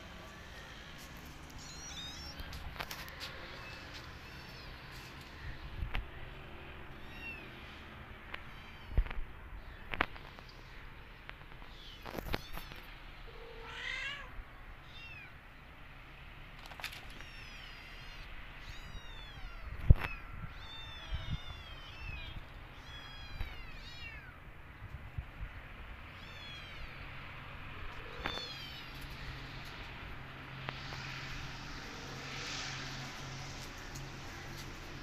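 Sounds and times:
kittens mewing: 27.9 - 29.8.

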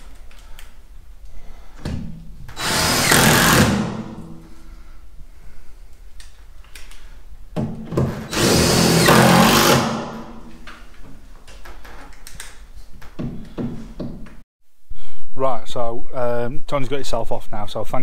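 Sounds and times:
cordless drill driving screw: 2.6 - 4.0, 8.3 - 10.0.

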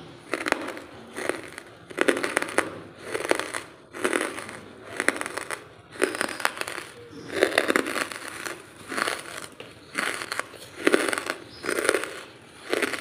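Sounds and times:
charcoal crunching and crumbling: 0.0 - 13.0.

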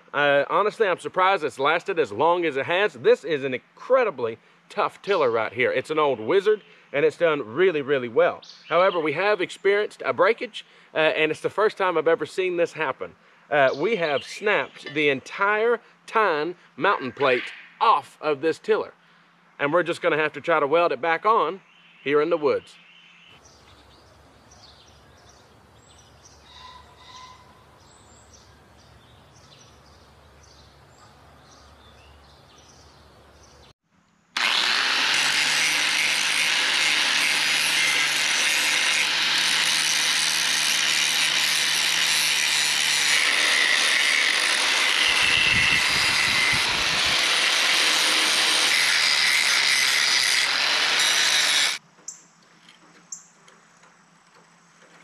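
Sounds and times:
angle grinder grinding steel: 34.4 - 51.8.

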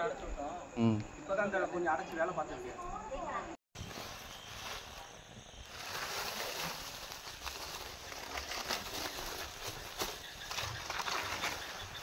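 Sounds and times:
plastic sack rustling and crackling: 3.8 - 12.0.

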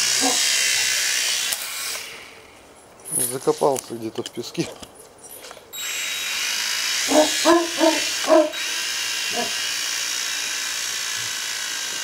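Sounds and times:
toy drone whirring: 0.0 - 2.4, 5.8 - 12.0
dog barking: 0.2 - 0.4, 7.1 - 8.6, 9.3 - 9.6.

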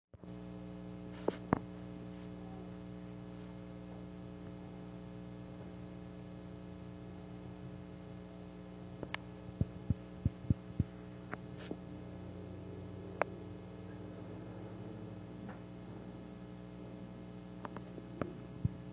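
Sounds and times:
steady electrical hum: 0.2 - 18.9
sharp clicks: 9.0 - 11.4.

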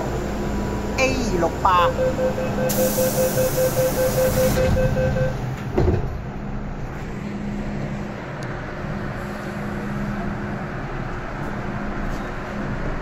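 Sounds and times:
train running rumble: 0.0 - 13.0
fast beeping tone: 1.7 - 5.4
air hiss: 2.7 - 3.4
thump: 5.7 - 6.2.

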